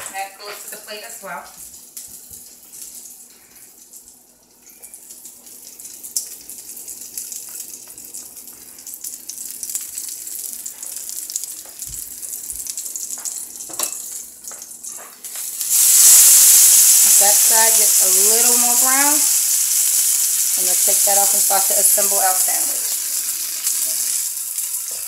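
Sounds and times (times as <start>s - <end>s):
patty sizzling in a skillet: 0.1s - 25.0s.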